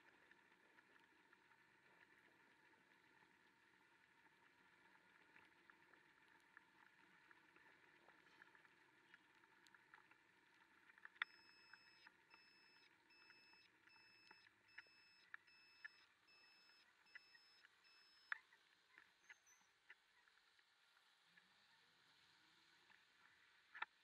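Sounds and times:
small ticks: 0.0s - 21.8s, 22.7s - 24.0s
two-tone turn-signal beeps: 11.2s - 18.3s.

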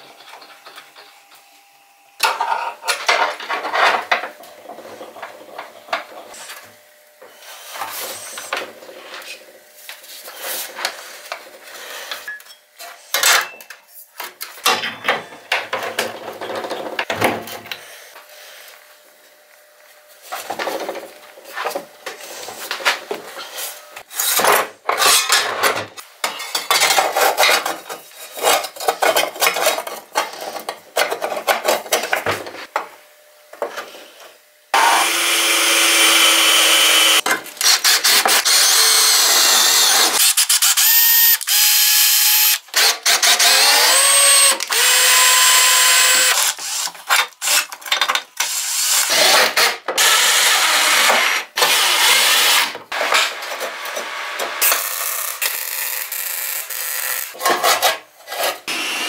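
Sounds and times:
power tool motor running: 34.8s - 47.6s.

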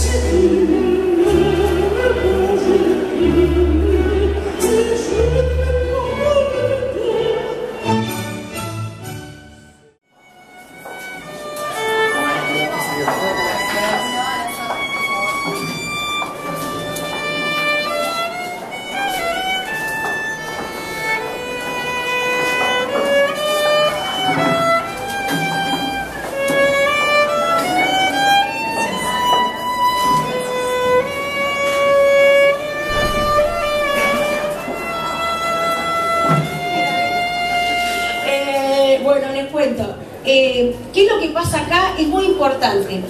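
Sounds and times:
solo violin slow melody: 10.1s - 38.5s.

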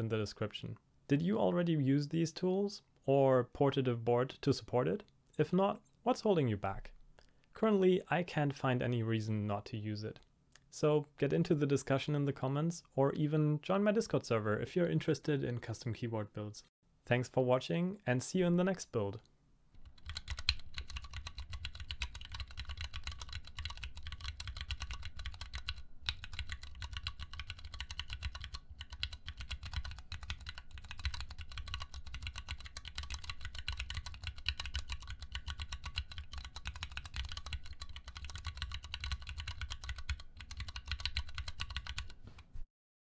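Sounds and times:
mechanical keyboard typing: 19.8s - 42.2s.

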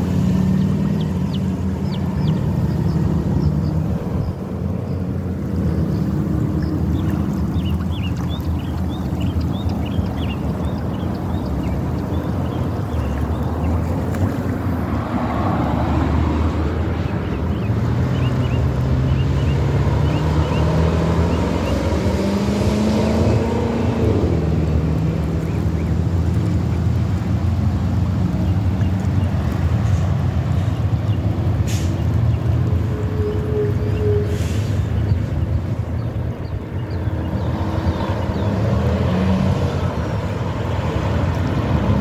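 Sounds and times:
wind rumbling on microphone: 0.0s - 19.1s
engine droning: 0.0s - 42.0s.

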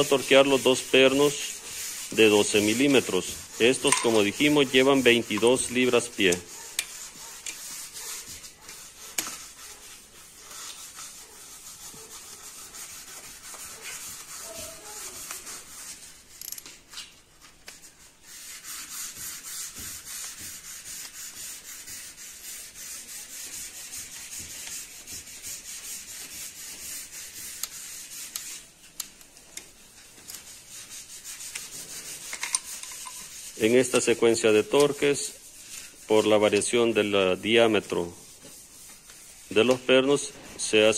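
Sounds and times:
torque wrench ratchet clicking: 16.4s - 16.6s.

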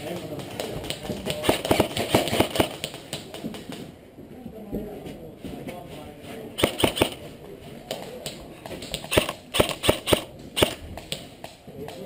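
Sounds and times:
airsoft gun shots: 1.3s - 2.9s, 6.6s - 7.2s, 9.0s - 10.8s.

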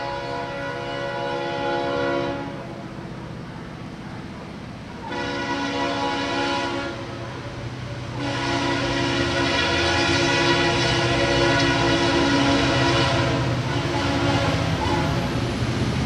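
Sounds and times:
locomotive air horn chord: 0.0s - 2.8s, 5.0s - 7.4s, 8.1s - 15.4s
diesel engine rumble: 0.0s - 16.0s.

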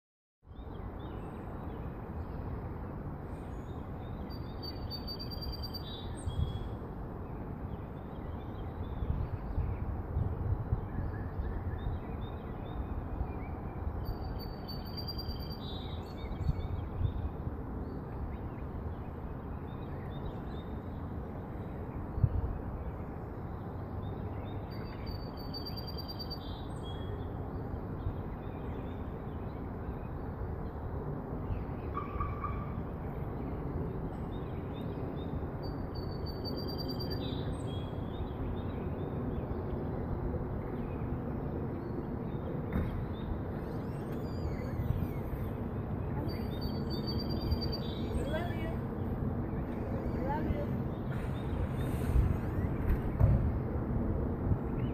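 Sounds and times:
distant traffic hum: 0.4s - 54.9s
songbird singing: 0.4s - 54.9s
brief thump: 42.7s - 43.0s, 52.8s - 53.5s.

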